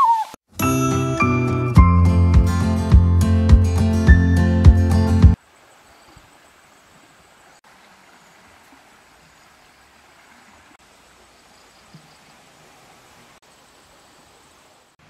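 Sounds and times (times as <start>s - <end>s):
steady hiss: 5.4s - 15.0s.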